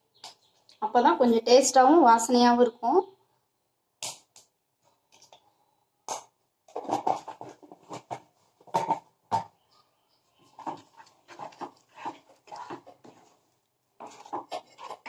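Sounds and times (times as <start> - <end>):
wooden spatula scraping a pan: 6.7 - 9.0, 10.4 - 15.0.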